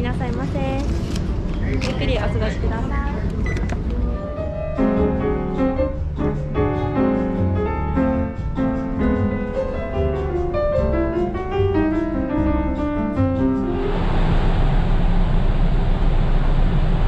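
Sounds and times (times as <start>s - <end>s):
solo grand piano melody: 3.8s - 13.9s.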